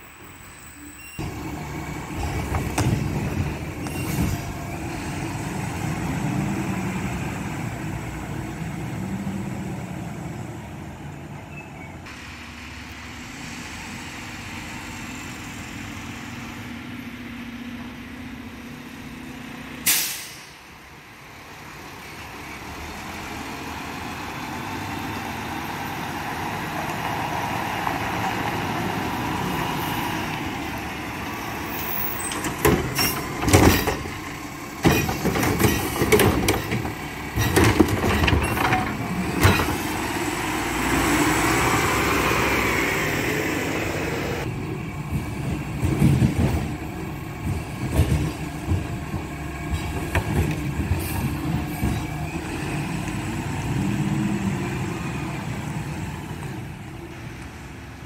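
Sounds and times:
garbage truck engine running: 1.2s - 11.2s, 30.5s - 57.7s.

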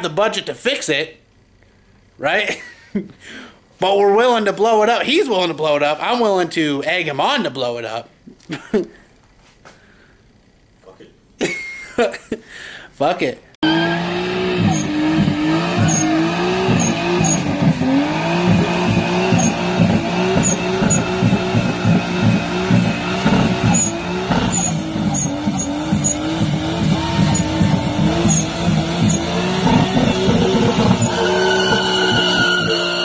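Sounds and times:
car engine revving high: 13.6s - 33.0s
tyres squealing: 13.6s - 33.0s.

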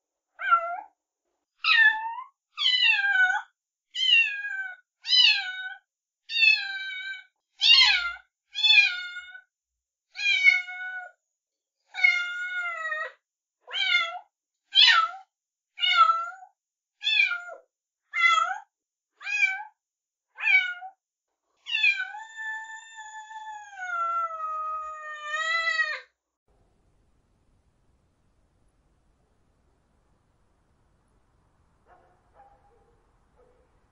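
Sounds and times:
kitten meowing: 1.7s - 3.4s, 21.7s - 26.0s.

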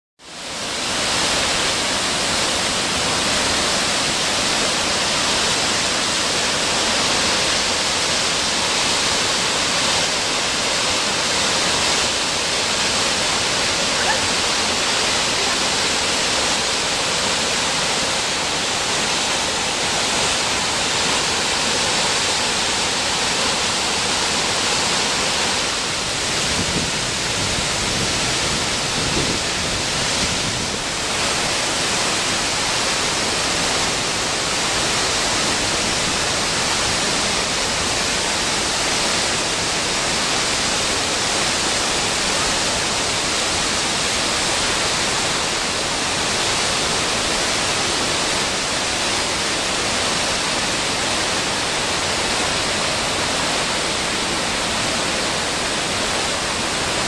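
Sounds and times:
waterfall rushing: 0.2s - 57.0s.

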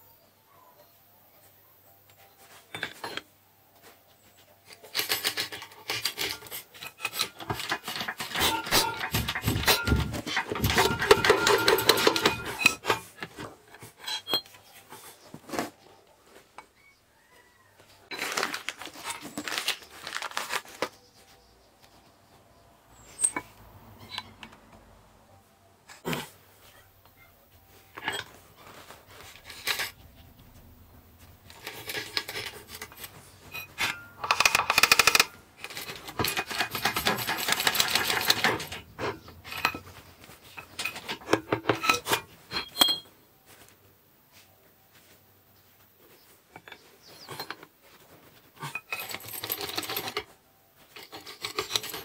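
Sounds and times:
metal parts knocking: 4.8s - 14.6s, 27.9s - 43.1s, 48.6s - 50.3s, 51.0s - 52.0s
hydraulic press clicks and creaks: 4.9s - 14.7s, 31.4s - 43.1s.

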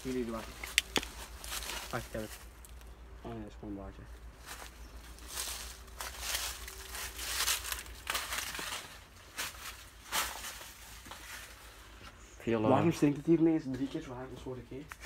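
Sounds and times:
brushing against dry vines: 0.0s - 3.0s, 4.1s - 12.2s
footsteps crunching on debris: 0.0s - 3.0s, 4.2s - 12.0s.

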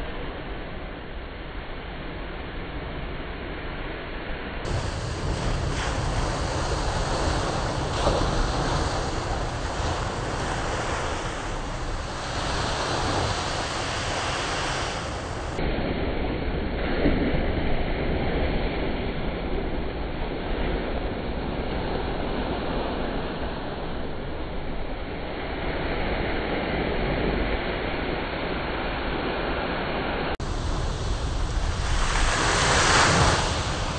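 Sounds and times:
surf crashing on rocks: 4.7s - 15.6s, 30.4s - 33.9s.

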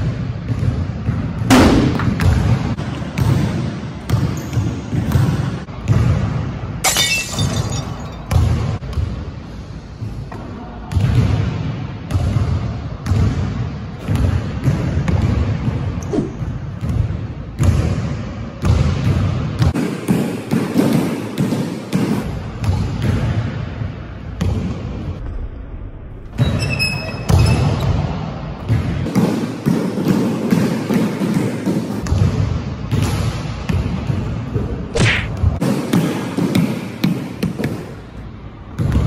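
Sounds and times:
basketball bouncing on wooden floor: 0.4s - 6.1s.

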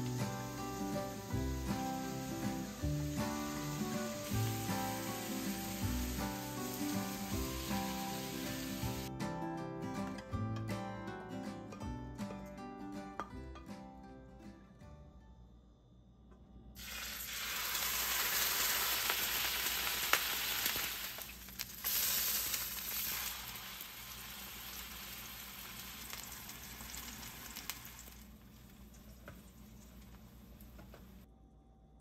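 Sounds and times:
food sizzling in frying pan: 0.0s - 9.1s, 16.8s - 30.7s.

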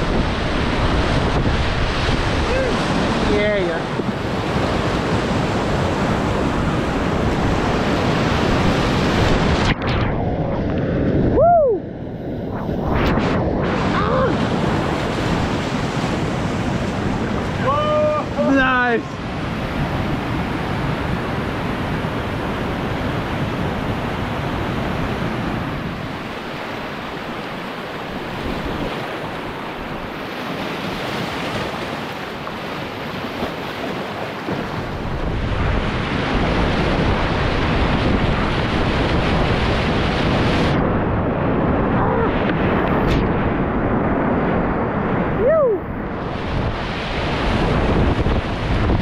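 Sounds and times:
whitewater rapids rushing: 0.0s - 9.6s, 13.6s - 40.7s.

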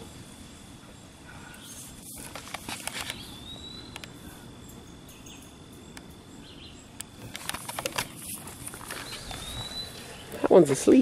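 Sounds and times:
faint outdoor ambience: 0.0s - 11.0s
clicks and rustles: 1.7s - 3.3s, 7.0s - 9.7s.

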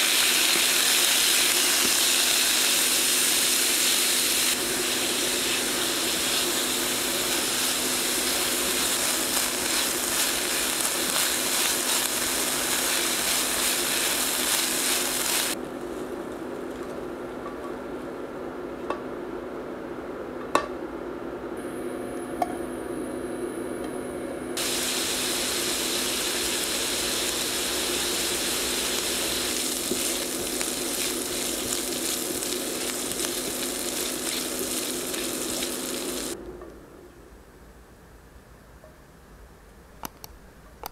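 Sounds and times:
bacon sizzling and crackling: 0.0s - 15.9s, 24.6s - 36.4s
low steady hum: 4.4s - 40.9s.

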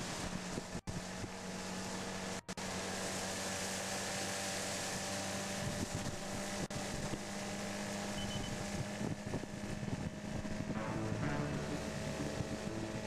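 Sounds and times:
motorboat engine running: 0.0s - 13.0s
water rushing: 0.0s - 13.0s
wind on microphone: 5.5s - 13.0s.

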